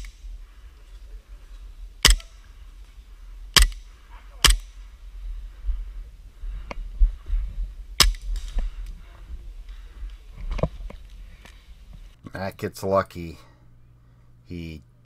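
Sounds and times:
airsoft pistol shots: 0:02.0 - 0:02.3, 0:03.6 - 0:03.8, 0:04.4 - 0:04.7, 0:08.0 - 0:08.3.

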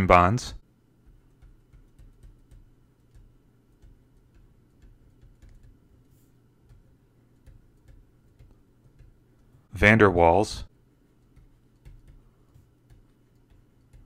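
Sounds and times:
low steady hum: 0:00.0 - 0:14.0
stylus tapping on pen tablet: 0:01.0 - 0:09.5, 0:11.2 - 0:14.0.

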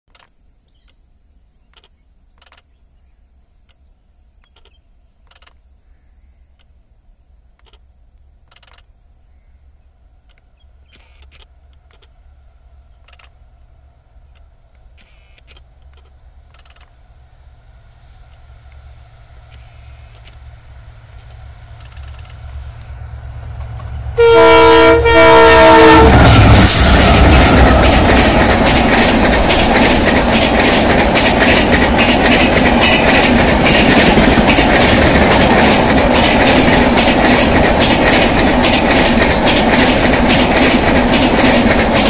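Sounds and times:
bird chirps: 0:00.7 - 0:06.8
faint clicks: 0:01.7 - 0:02.7, 0:13.0 - 0:13.4
train rumble: 0:09.1 - 0:42.0
locomotive engines humming: 0:09.9 - 0:42.0.

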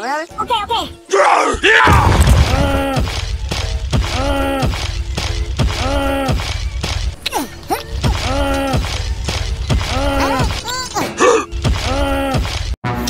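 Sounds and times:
short crash: 0:01.8 - 0:03.4.

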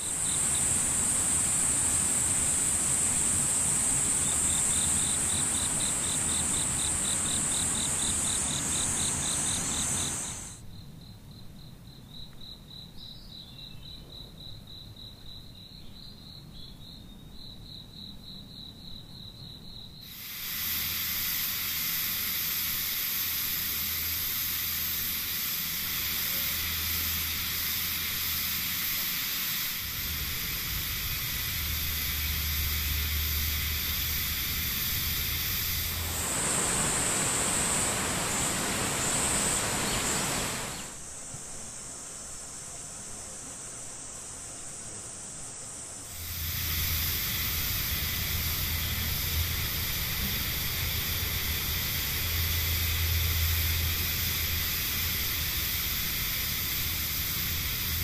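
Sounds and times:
loud rushing hiss: 0:00.0 - 0:10.6, 0:20.0 - 0:58.0
cricket-like pulsed trill: 0:00.0 - 0:41.0, 0:46.1 - 0:58.0
insect high steady buzz: 0:00.0 - 0:58.0.

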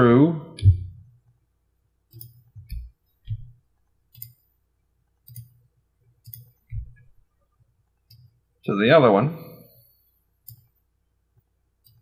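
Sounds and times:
computer mouse clicking: 0:02.1 - 0:04.4, 0:05.2 - 0:05.6, 0:06.2 - 0:07.1, 0:07.9 - 0:08.4, 0:10.4 - 0:10.8, 0:11.8 - 0:12.0.

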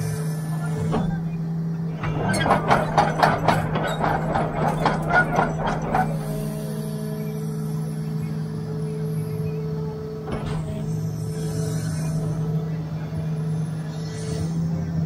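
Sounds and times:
excavator diesel engine running: 0:00.4 - 0:15.0
rapid irregular clattering: 0:02.0 - 0:06.6.

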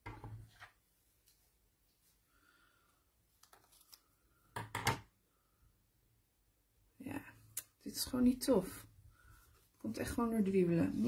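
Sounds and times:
paper handling: 0:03.4 - 0:04.1.

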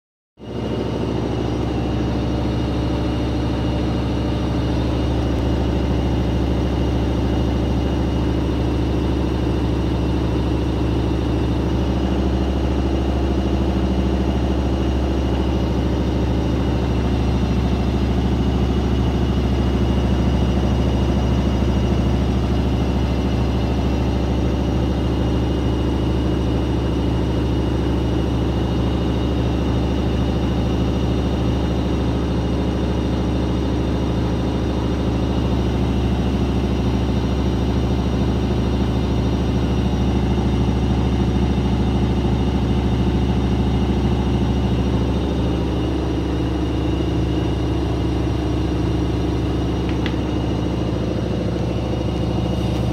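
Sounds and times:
washing machine spinning: 0:00.4 - 0:52.9.

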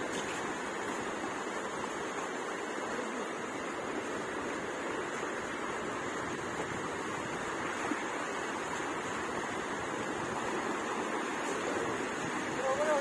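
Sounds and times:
small surf waves on sand: 0:00.0 - 0:13.0.

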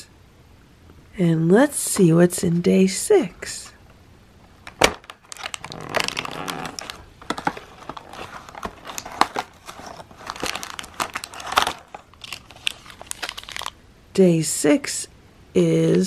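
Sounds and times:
plastic wrapper crinkling: 0:04.6 - 0:13.8
cardboard tearing: 0:04.8 - 0:13.7.

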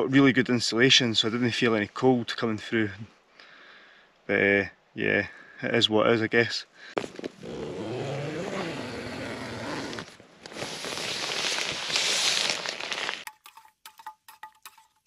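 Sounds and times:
tent zip opening: 0:07.0 - 0:13.3
spoon stirring in metal mug: 0:13.3 - 0:15.0.

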